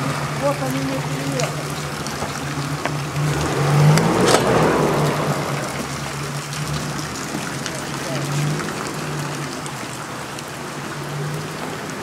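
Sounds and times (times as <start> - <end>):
vehicle engine humming: 0.0 - 12.0
wet-road noise: 0.0 - 12.0.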